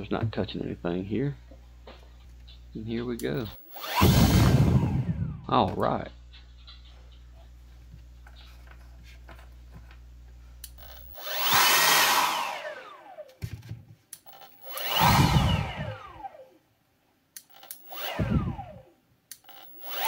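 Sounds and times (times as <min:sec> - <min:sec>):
leaf blower fan whine: 0:03.4 - 0:05.6, 0:10.7 - 0:13.6, 0:14.3 - 0:16.5, 0:17.8 - 0:18.9, 0:19.5 - 0:20.0.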